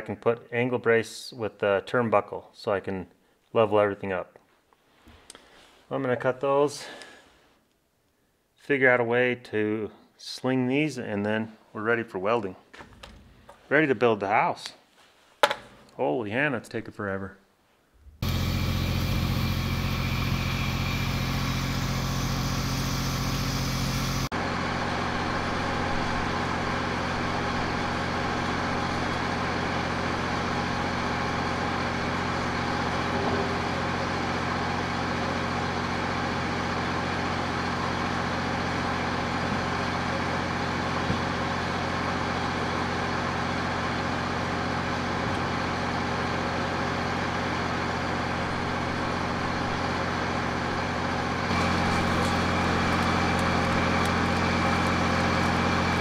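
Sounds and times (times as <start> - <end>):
crane engine running: 18.2 - 56.0.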